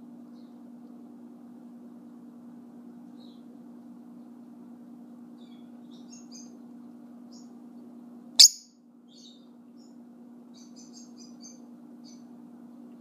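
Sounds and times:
steady low hum: 0.0 - 13.0
lovebirds chirping: 5.4 - 6.7, 8.4 - 12.3
loud sharp bird call: 8.4 - 8.7.

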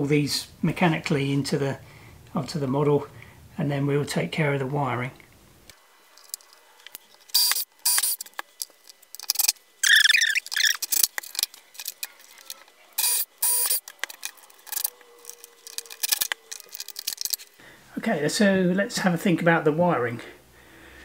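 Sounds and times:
brief squeak: 9.8 - 10.8.

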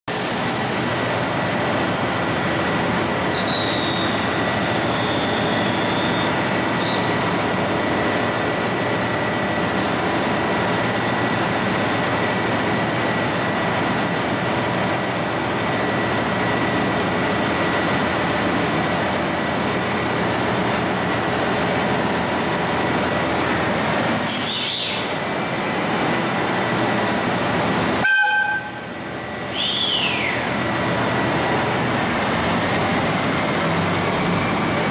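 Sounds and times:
diesel railcar engines idling: 0.1 - 34.9
train horn toot: 28.0 - 28.8.

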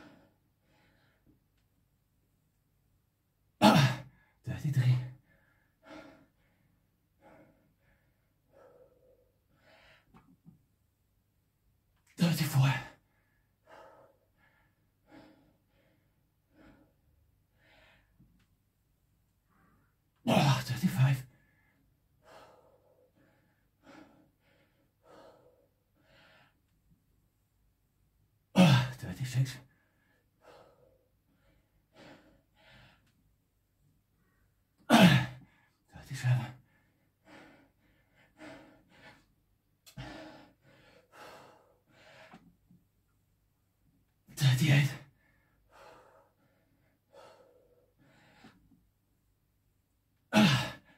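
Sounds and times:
man breathing hard: 0.0 - 1.4, 5.2 - 10.4, 13.0 - 18.4, 21.3 - 26.7, 29.6 - 33.2, 36.6 - 42.7, 45.0 - 48.8.

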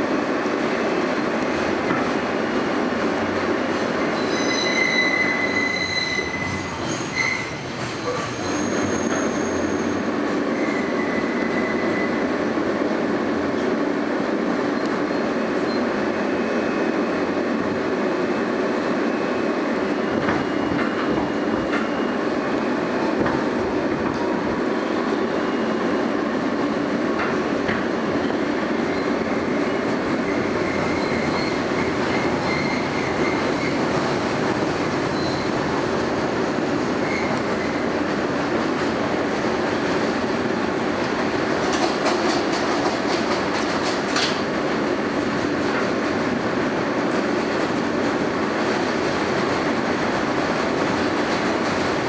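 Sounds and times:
subway wheels rumbling on rails: 0.0 - 52.0
high-pitched wheel squeal: 4.2 - 12.2, 28.9 - 33.8.

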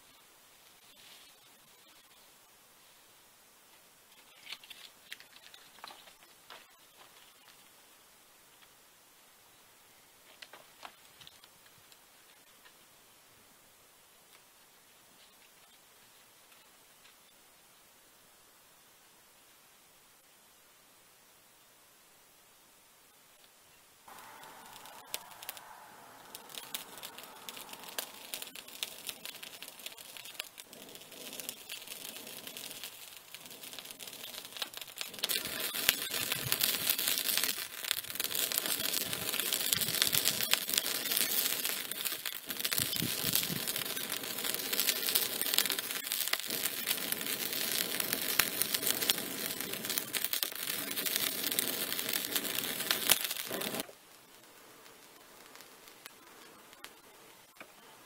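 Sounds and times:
charcoal fire crackling and popping: 3.7 - 7.8, 10.2 - 12.8, 24.1 - 57.9.

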